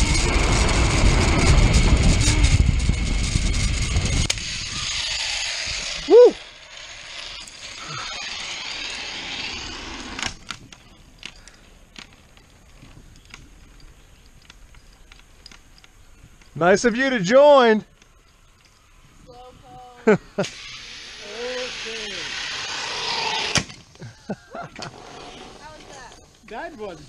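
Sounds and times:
wind rushing: 0:00.0 - 0:06.4
zipline pulleys running on cable: 0:00.0 - 0:18.8, 0:20.4 - 0:23.7, 0:24.4 - 0:26.4
person whooping: 0:06.0 - 0:06.4.

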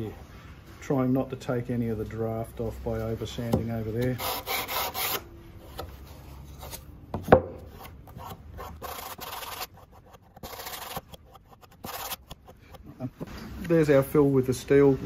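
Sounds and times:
sandpaper rubbing: 0:04.1 - 0:05.2, 0:07.8 - 0:12.6.

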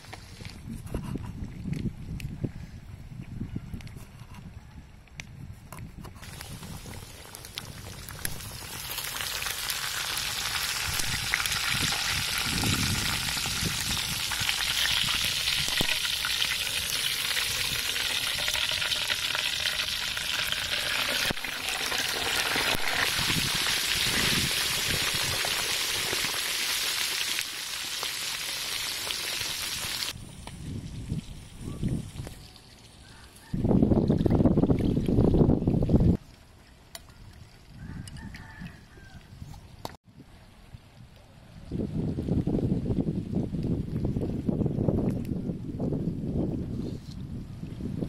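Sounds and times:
pork sizzling in hot oil: 0:06.2 - 0:30.2.

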